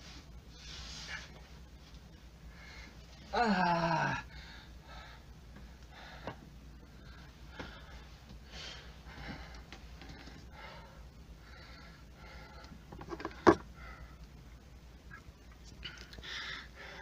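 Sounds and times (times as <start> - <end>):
person breathing hard: 4.0 - 14.3, 15.8 - 17.0.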